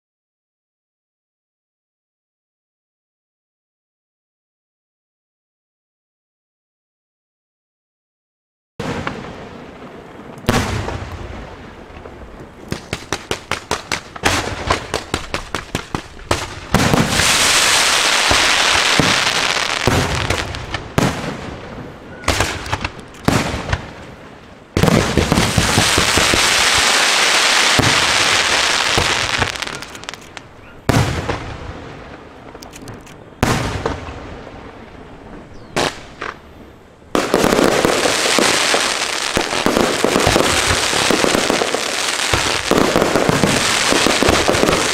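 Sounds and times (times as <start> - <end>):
firework fountains hissing: 15.8 - 20.8, 24.9 - 30.5
firework shells bursting: 24.8 - 31.5.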